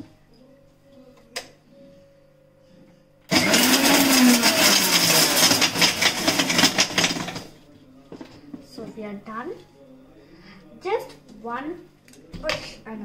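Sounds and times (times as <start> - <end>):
mixer grinder motor running: 3.3 - 7.5.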